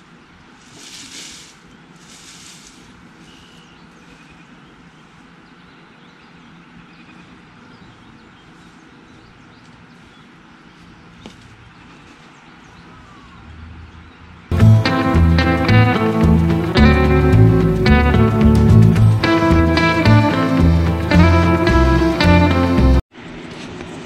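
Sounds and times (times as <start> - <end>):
faint bird chirps: 3.1 - 14.5
acoustic guitar music: 14.5 - 23.0.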